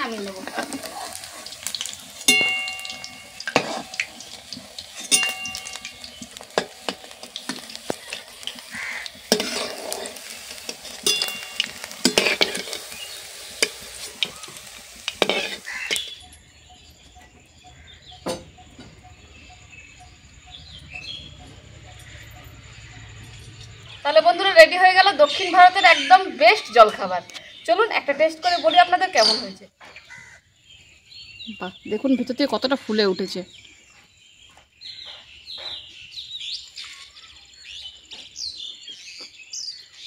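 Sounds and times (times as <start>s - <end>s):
food sizzling in hot oil: 0.0s - 16.8s
metal spoon knocking against pan: 2.3s - 7.7s, 11.0s - 12.6s.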